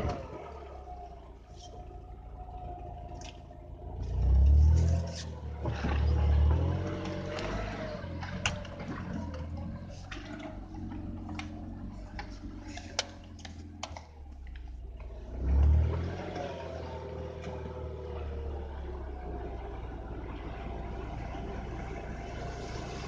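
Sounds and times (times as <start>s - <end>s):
car engine running: 0.0s - 23.0s
sharp clicks and knocks: 8.2s - 15.8s.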